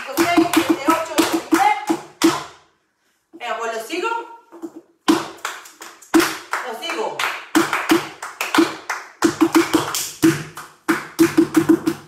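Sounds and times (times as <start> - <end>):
sharp hand claps: 5.1 - 12.0.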